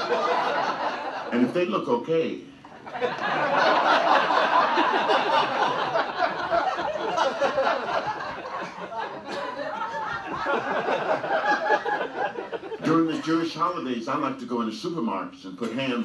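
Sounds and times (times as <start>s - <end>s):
audience laughing: 0.0s - 1.5s, 2.7s - 13.5s.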